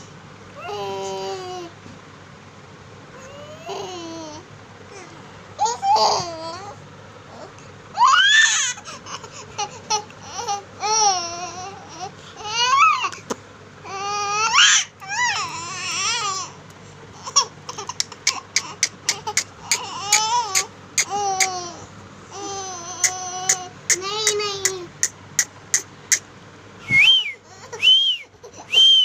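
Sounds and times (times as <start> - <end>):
baby crying: 3.2 - 13.2, 13.9 - 16.6, 17.2 - 24.8.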